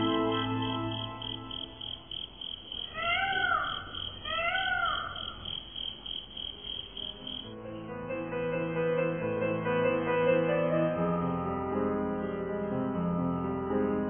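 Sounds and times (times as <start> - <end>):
peacock calls: 0.0 - 7.4
crickets chirping: 0.0 - 7.6.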